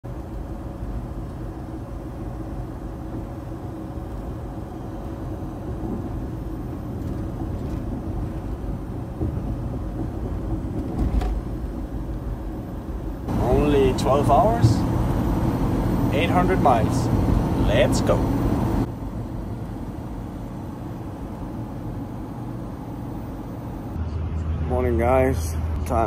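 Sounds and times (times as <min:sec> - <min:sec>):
vehicle engine rumble inside cab: 0:00.0 - 0:26.0
faint steady hum: 0:00.1 - 0:24.1.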